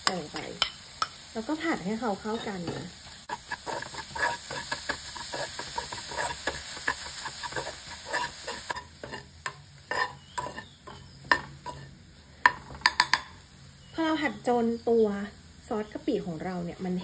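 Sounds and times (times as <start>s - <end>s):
food sizzling: 0.0s - 17.0s
metal spoon scraping a pan: 2.1s - 13.4s.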